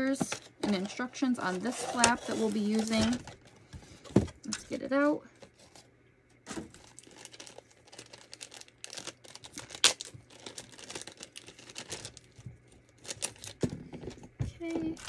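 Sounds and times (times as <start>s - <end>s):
plastic bag crinkling: 1.5s - 3.6s, 6.5s - 14.1s.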